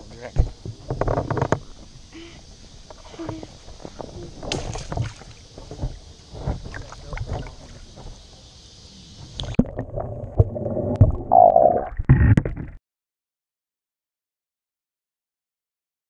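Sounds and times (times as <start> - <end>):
water splashing and sloshing: 2.8 - 8.5.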